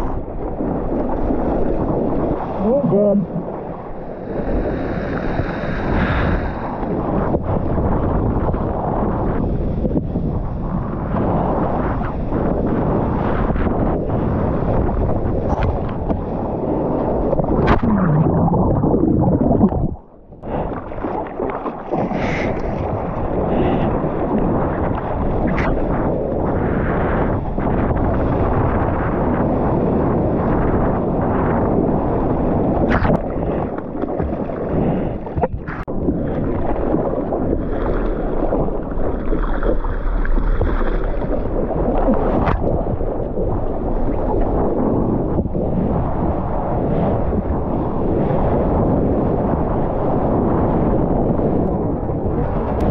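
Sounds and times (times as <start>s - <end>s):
water rushing: 0.0s - 6.9s, 17.0s - 26.0s
water rushing and splashing: 0.0s - 7.9s, 14.4s - 28.7s, 32.7s - 44.5s
wind buffeting microphone: 0.0s - 52.9s.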